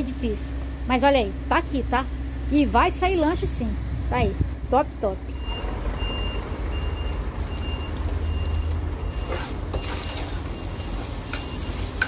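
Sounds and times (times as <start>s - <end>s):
diesel truck rumble: 0.0s - 12.0s
reversing alarm beeping: 5.3s - 12.0s.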